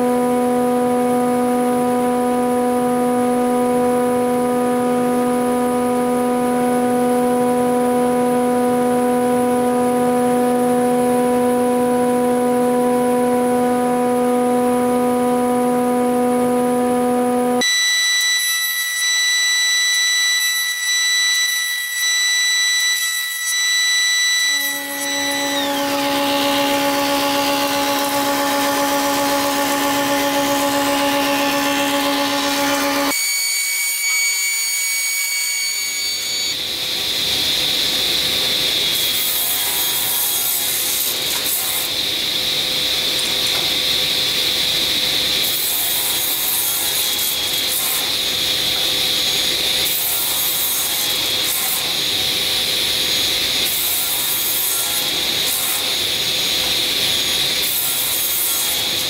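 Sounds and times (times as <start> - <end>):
thickness planer humming: 0.0 - 19.6, 20.4 - 33.4
table saw cutting wood: 0.0 - 59.0.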